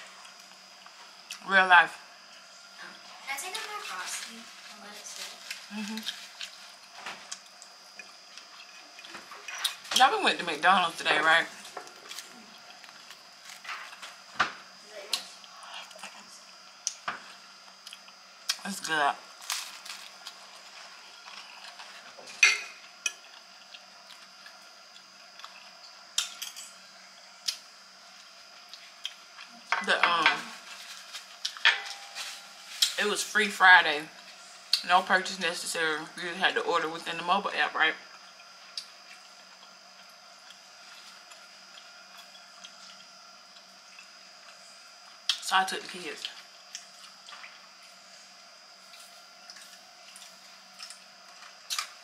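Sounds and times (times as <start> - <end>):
thin high whine: 25.5 - 51.8.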